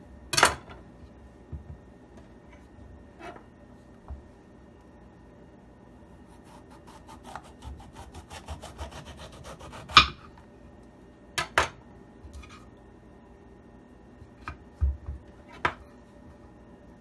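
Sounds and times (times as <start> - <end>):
knife sawing through pepper: 6.3 - 10.2.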